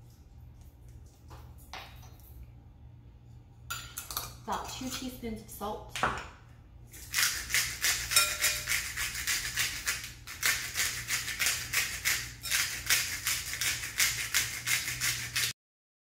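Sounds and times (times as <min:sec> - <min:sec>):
salt grinder grinding: 0:06.9 - 0:15.6.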